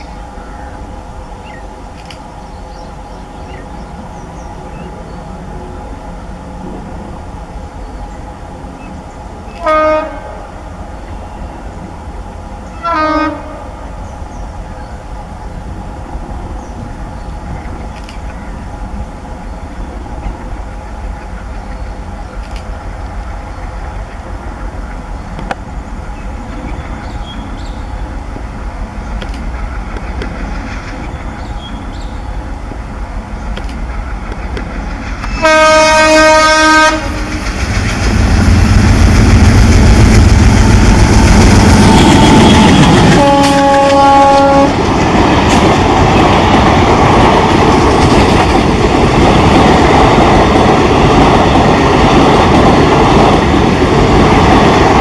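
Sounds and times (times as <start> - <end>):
diesel locomotive engine rumble: 0.0 - 55.0
train horn: 9.6 - 10.6, 12.7 - 13.8, 35.2 - 37.5, 41.8 - 44.8
train wheels clickety-clack: 28.9 - 32.2, 33.4 - 55.0.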